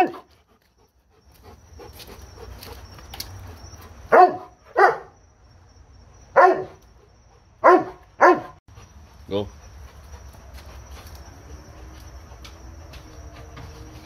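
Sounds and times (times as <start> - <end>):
dog barking: 0.0 - 0.3, 4.1 - 5.2, 6.3 - 6.8, 7.6 - 8.6.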